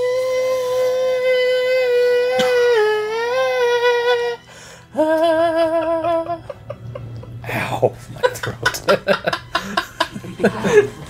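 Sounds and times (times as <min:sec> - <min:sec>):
person singing high notes: 0:00.0 - 0:06.4.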